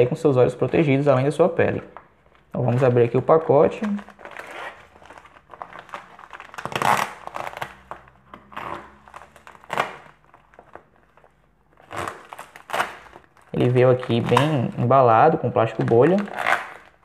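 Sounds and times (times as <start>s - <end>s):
plastic mailer crinkling and tearing: 2.2s - 17.0s.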